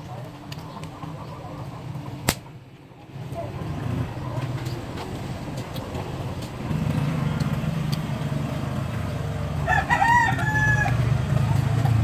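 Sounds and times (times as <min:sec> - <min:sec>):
rooster crowing: 0:09.6 - 0:11.3.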